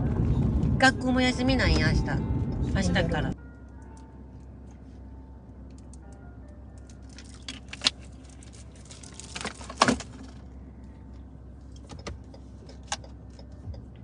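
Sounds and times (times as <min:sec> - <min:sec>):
car cabin road rumble: 0:00.0 - 0:14.0.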